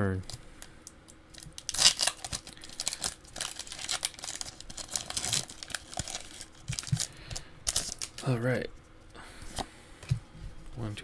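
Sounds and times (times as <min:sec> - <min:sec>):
foil wrapper crinkling: 0:01.3 - 0:08.3.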